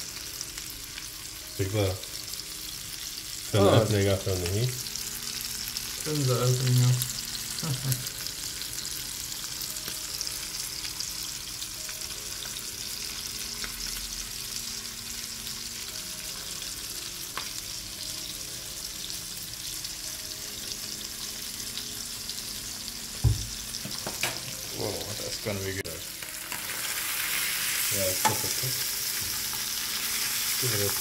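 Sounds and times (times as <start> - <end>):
fish sizzling in butter: 0.0 - 31.0
knock: 23.2 - 24.3.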